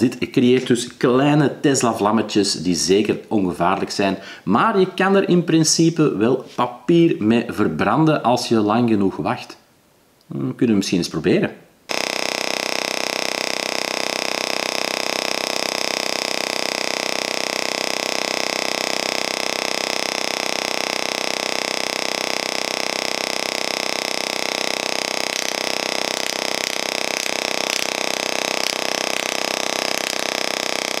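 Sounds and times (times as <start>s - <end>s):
electric crackles: 11.9s - 31.0s
tesla coil buzzing: 11.9s - 31.0s.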